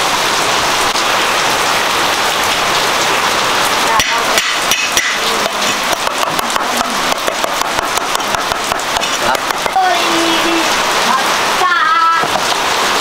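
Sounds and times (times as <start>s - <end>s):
rapid sharp knocks: 4.0s - 9.9s.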